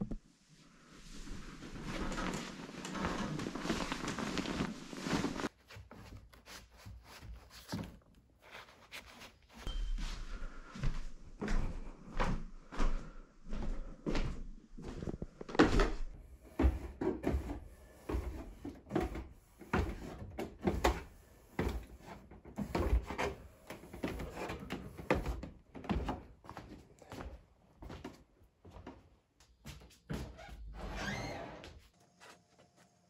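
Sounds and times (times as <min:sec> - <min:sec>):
footsteps on wooden stairs: 0:10.8 - 0:30.6.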